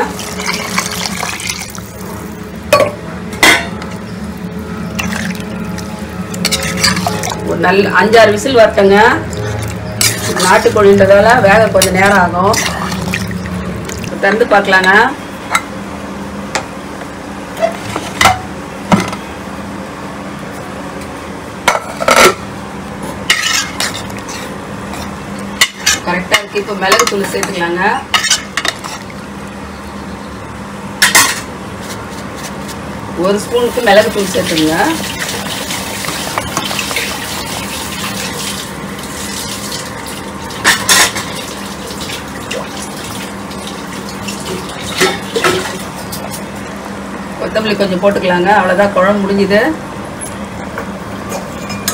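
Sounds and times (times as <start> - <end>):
low hum: 0.0 - 17.5
steady low hum: 0.0 - 51.9
ladle stirring: 4.9 - 7.6, 9.2 - 10.9, 33.7 - 46.7.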